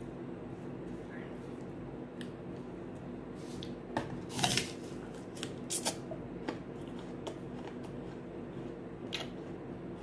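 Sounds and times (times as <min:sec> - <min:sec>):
apple crunching while chewed: 0:03.6 - 0:10.0.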